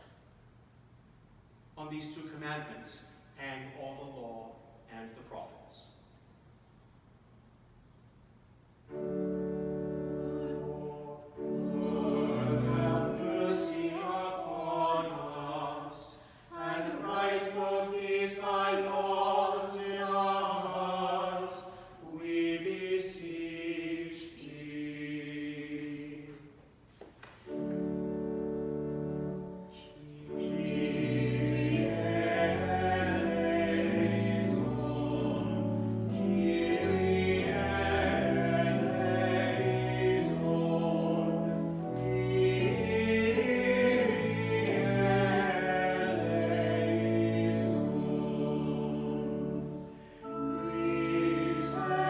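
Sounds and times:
organ accompaniment: 0:08.8 - 0:15.8, 0:27.3 - 0:52.0
choir singing: 0:08.9 - 0:26.6, 0:27.5 - 0:52.0.

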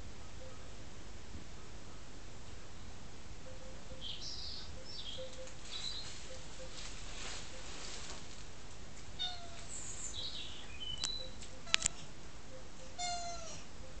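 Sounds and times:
cat meowing: 0:09.2 - 0:09.7, 0:13.0 - 0:13.7.

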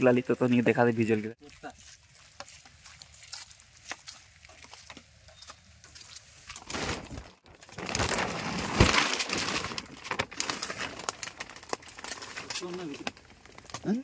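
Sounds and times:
plastic tarpaulin rustling: 0:05.8 - 0:14.0.

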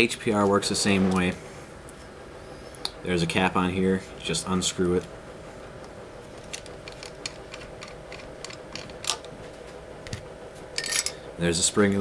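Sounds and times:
faint steady hum: 0:00.0 - 0:12.0
metal parts clicking: 0:06.4 - 0:09.3.

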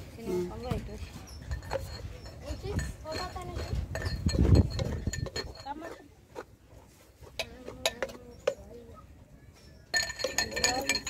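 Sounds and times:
spoon clinking against pot: 0:09.9 - 0:11.0.

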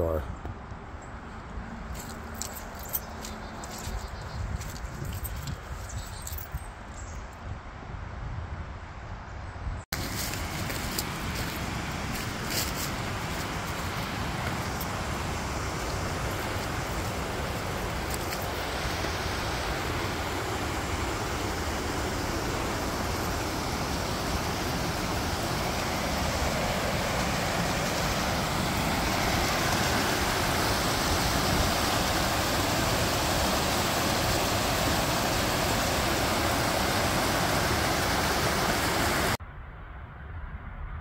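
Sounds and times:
water rushing over rocky cascade: 0:10.0 - 0:39.4.

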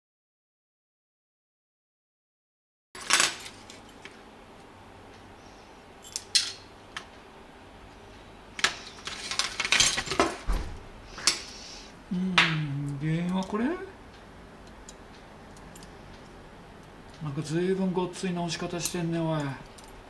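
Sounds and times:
person humming: 0:12.0 - 0:13.1.

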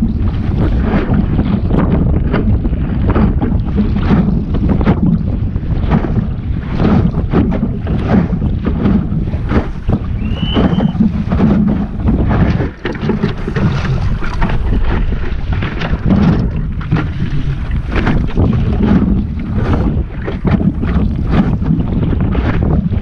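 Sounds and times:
water splashing against hull: 0:00.0 - 0:23.0
wind buffeting microphone: 0:00.0 - 0:23.0.

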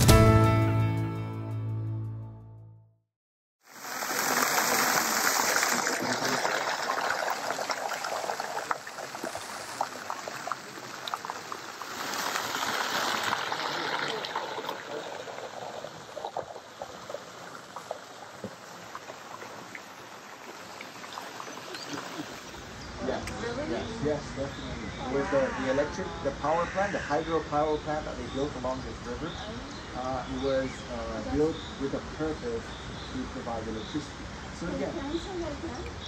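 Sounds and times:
running water rushing: 0:03.6 - 0:26.5.

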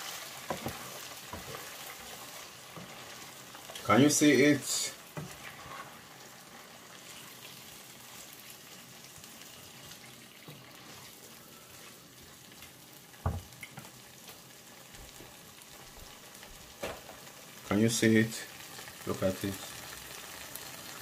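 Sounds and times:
wooden spoon stirring: 0:00.0 - 0:07.6, 0:09.8 - 0:12.3
faint sizzle in frying pan: 0:00.0 - 0:21.0.

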